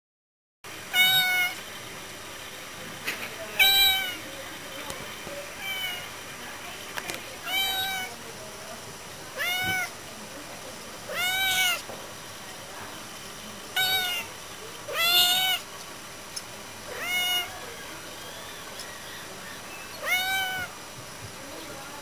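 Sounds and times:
cat meowing loudly: 0.9s - 1.6s, 3.6s - 4.2s, 5.5s - 6.1s, 7.4s - 8.1s, 9.4s - 10.0s, 11.1s - 11.9s, 13.7s - 14.3s, 14.9s - 15.7s, 16.9s - 17.6s, 20.0s - 20.8s.

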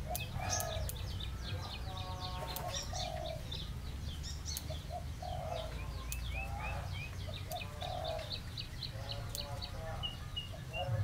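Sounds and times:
dove cooing: 0.0s - 1.0s, 2.2s - 3.6s, 4.7s - 8.4s
scissors snipping twigs: 0.0s - 1.1s
small birds chirping: 0.0s - 11.0s.

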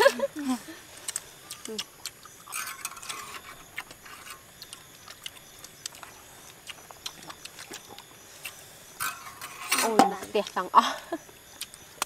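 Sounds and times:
high insect hum: 0.0s - 12.0s
utensils clicking against bowls: 1.1s - 6.0s, 9.0s - 10.6s.

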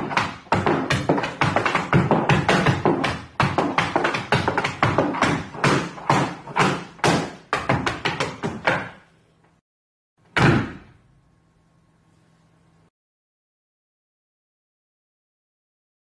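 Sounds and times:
tap shoes on stage floor: 0.0s - 9.0s.

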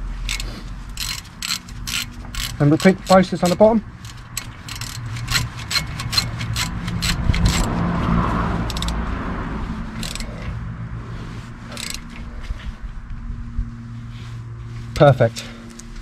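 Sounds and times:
vehicle passing: 0.0s - 16.0s
ratchet clicking: 0.2s - 7.8s, 8.6s - 9.0s, 9.9s - 10.6s, 11.7s - 12.3s.

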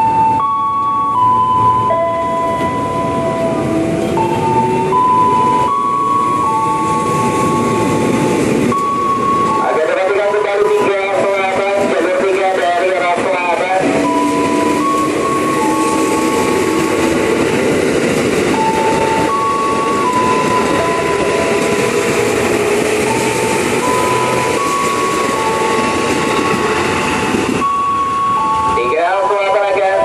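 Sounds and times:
electric train wheel and rail noise: 0.0s - 30.0s
high whining tones: 13.1s - 17.8s.

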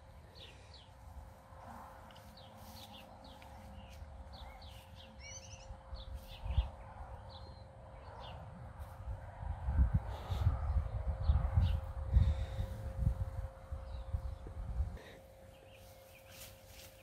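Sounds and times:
small birds chirping: 0.2s - 1.1s, 2.1s - 8.9s, 13.8s - 17.0s.

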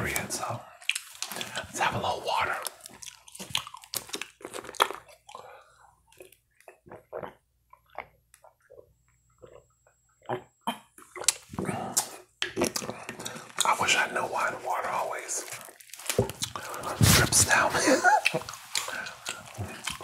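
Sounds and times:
person gulping water: 2.6s - 13.7s, 16.1s - 17.2s, 18.1s - 20.0s.

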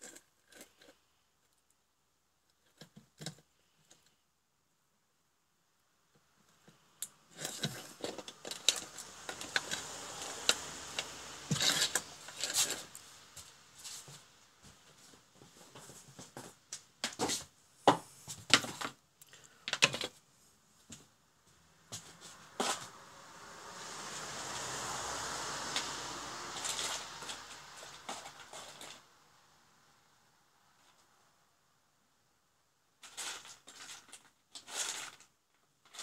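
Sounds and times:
hands handling wires: 6.5s - 20.2s.

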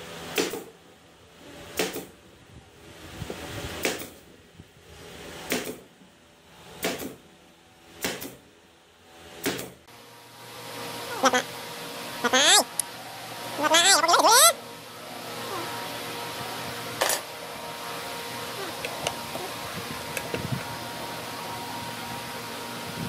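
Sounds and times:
nail gun firing into wood: 1.7s - 2.1s, 5.4s - 5.9s, 6.8s - 7.2s, 8.0s - 8.4s, 9.4s - 9.8s.

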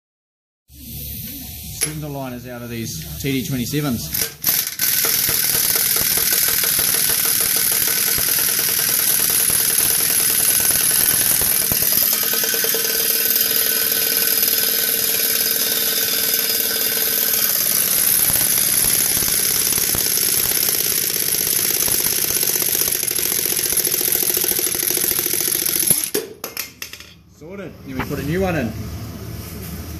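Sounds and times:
impact wrench hammering: 4.2s - 27.2s.

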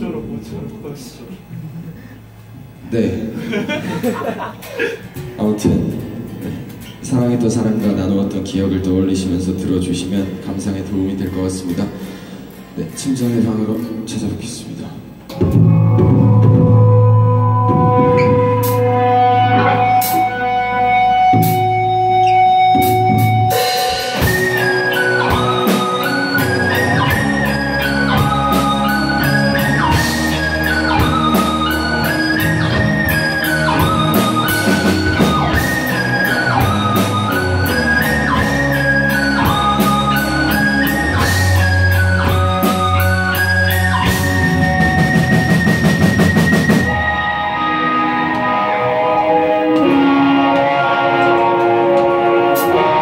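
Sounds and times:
drum kit: 4.0s - 8.5s, 15.0s - 53.0s
electric guitars: 15.1s - 53.0s
bass guitar: 15.2s - 53.0s.

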